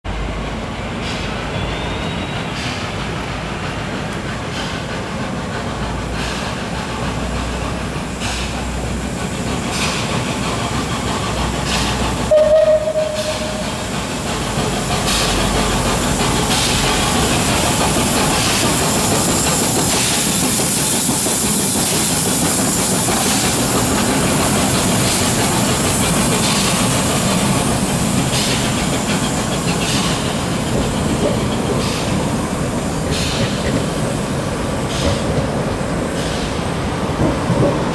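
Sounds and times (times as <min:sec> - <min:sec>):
tram wheel noise: 0:00.1 - 0:37.9
steam hiss: 0:00.6 - 0:37.9
short whistle note: 0:12.3 - 0:13.7.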